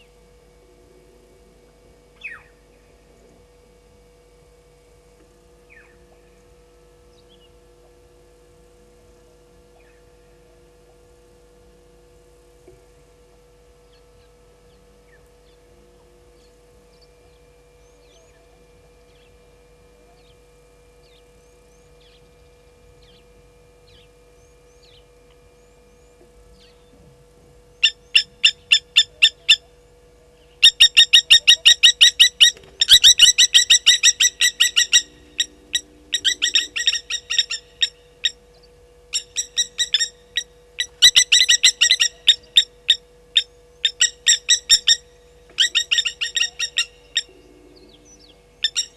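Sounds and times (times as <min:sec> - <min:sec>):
lapwings giving alarm calls: 0:27.8 - 0:29.8, 0:30.6 - 0:38.5, 0:39.1 - 0:48.9.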